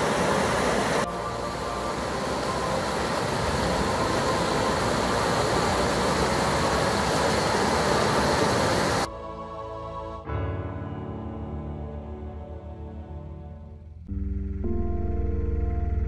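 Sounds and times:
water rushing over rocks: 0:00.0 - 0:09.1.

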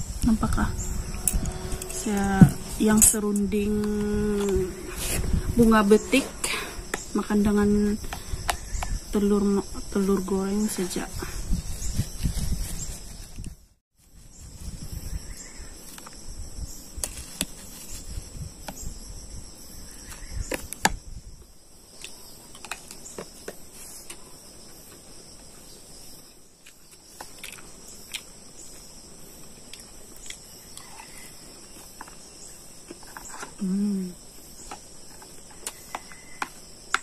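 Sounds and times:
low rumble: 0:00.0 - 0:08.1
insects trilling: 0:00.0 - 0:13.3, 0:14.0 - 0:37.0.

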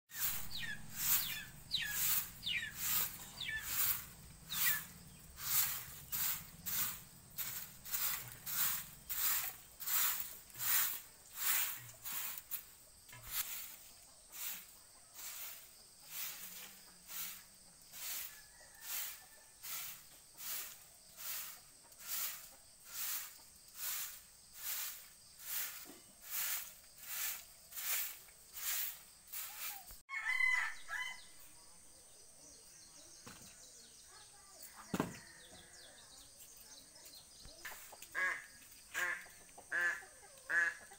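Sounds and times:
birds chirping: 0:00.1 - 0:09.9
broom sweeping earth: 0:00.1 - 0:30.1, 0:32.1 - 0:40.7.

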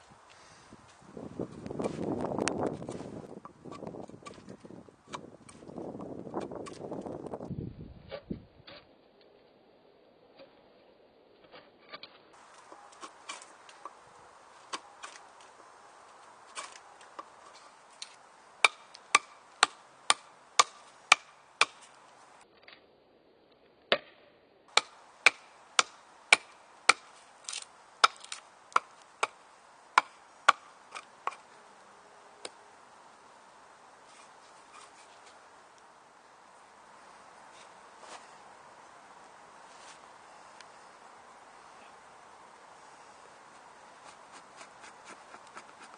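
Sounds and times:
knife chopping wood: 0:18.0 - 0:21.9, 0:23.9 - 0:29.4, 0:30.0 - 0:31.4.

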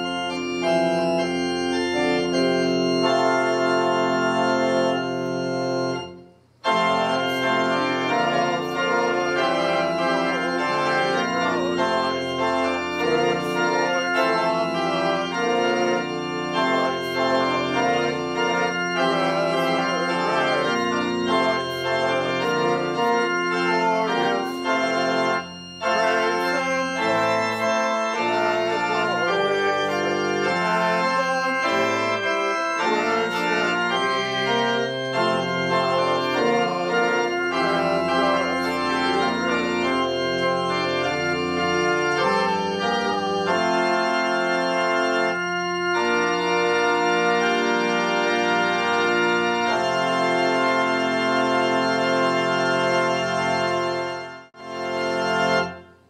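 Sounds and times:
church organ playing a hymn: 0:00.0 - 0:56.0
voices singing along: 0:06.7 - 0:43.9.

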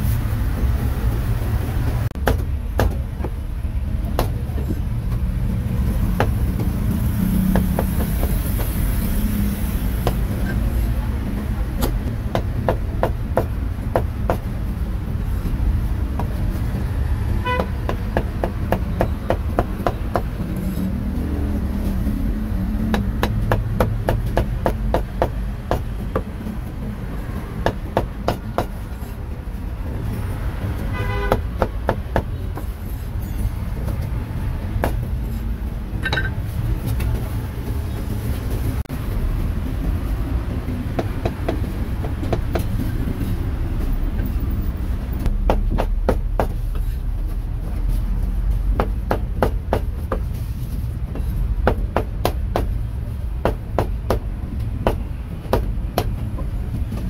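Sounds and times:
traffic rumble: 0:00.0 - 0:57.0
cleaver chopping meat on wood: 0:02.2 - 0:03.4, 0:07.4 - 0:08.8, 0:10.0 - 0:10.2, 0:22.8 - 0:26.3, 0:45.3 - 0:46.6, 0:48.7 - 0:50.3, 0:51.6 - 0:52.8, 0:53.4 - 0:56.2
vehicle horn toots: 0:17.4 - 0:17.8, 0:30.8 - 0:31.5.

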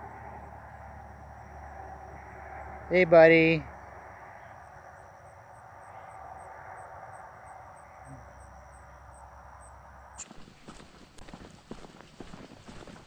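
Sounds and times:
cricket chirping: 0:00.0 - 0:13.0
faint outdoor background: 0:00.0 - 0:13.0
footsteps on dirt trail: 0:10.2 - 0:13.0.

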